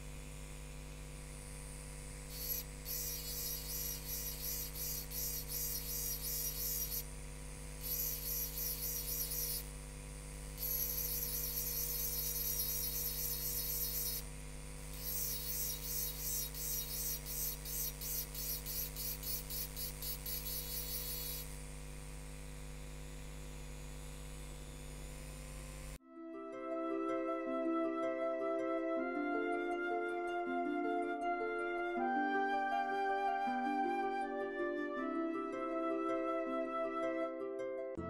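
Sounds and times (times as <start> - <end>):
rotary tool motor hum: 0.0 - 26.0.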